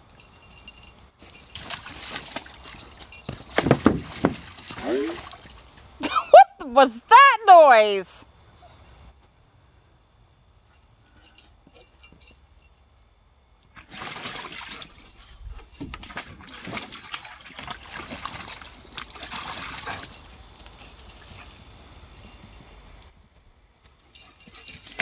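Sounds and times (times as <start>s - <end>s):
puppy splashing in water: 1.4s - 6.0s, 13.8s - 21.6s.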